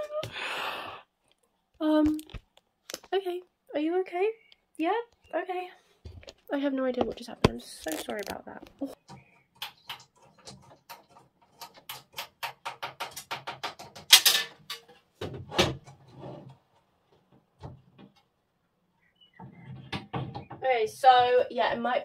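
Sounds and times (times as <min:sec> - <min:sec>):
pegboard clicks and taps: 0:09.1 - 0:14.1.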